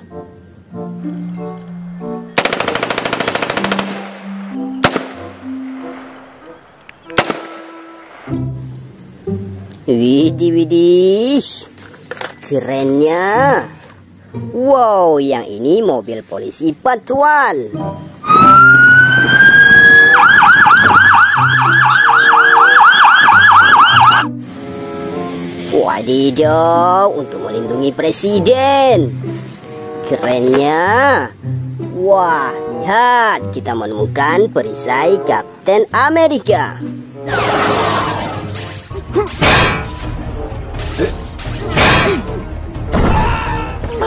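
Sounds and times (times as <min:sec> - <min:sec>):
light background music: 0:00.0 - 0:44.0
automatic gunfire burst: 0:02.4 - 0:04.1
single gunshots: 0:02.4 - 0:04.2, 0:04.8 - 0:05.3, 0:07.1 - 0:07.9
police siren wailing and yelping: 0:18.2 - 0:24.3, 0:37.3 - 0:38.5.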